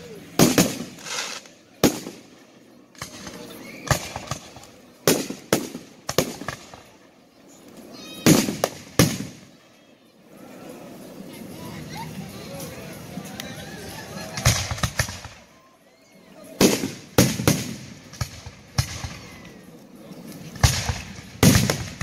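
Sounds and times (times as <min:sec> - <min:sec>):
fireworks bursting with bangs: 0:00.0 - 0:07.1, 0:08.0 - 0:09.6, 0:14.3 - 0:15.5, 0:16.6 - 0:19.6, 0:20.2 - 0:22.0.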